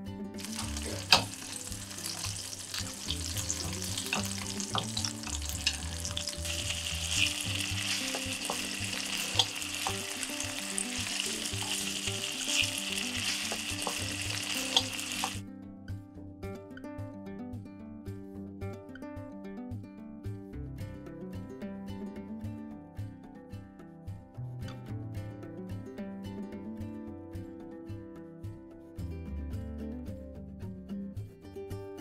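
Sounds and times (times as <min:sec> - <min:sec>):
chicken sizzling in oil: 0:00.4 - 0:15.4
tongs clicking on pan: 0:00.4 - 0:15.4.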